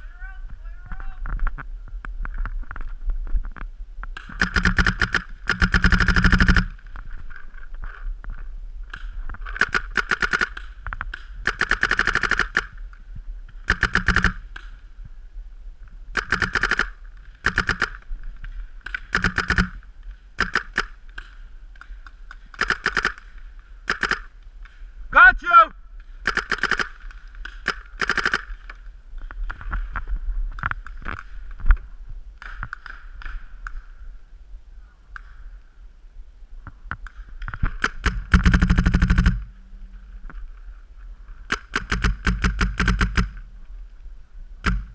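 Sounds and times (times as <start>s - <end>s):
paintball marker rapid firing: 4.2s - 6.8s, 9.5s - 12.8s, 13.7s - 14.6s, 16.2s - 18.0s, 18.9s - 19.8s, 20.4s - 21.0s, 22.6s - 23.2s, 23.9s - 24.3s, 26.2s - 28.6s, 37.7s - 39.5s, 41.5s - 43.4s, 44.6s - 44.9s.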